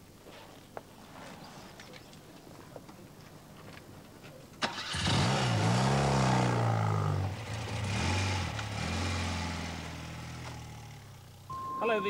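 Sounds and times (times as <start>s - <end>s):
motorcycle engine revving: 4.7s - 11.5s.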